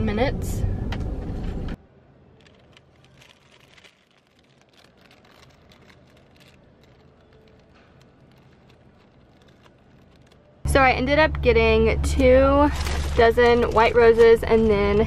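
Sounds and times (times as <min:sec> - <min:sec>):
plastic wrapping crinkling: 0:02.2 - 0:10.7, 0:12.6 - 0:15.0.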